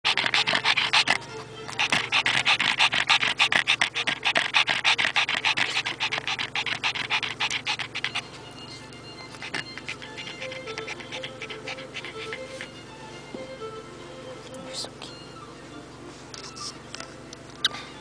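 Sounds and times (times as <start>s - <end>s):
dog panting fast: 0.1s - 12.9s.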